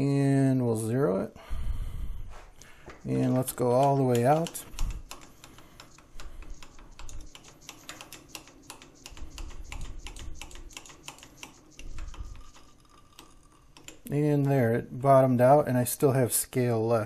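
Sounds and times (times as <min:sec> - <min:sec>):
handwheel mechanical clicks: 0:03.2 - 0:14.1.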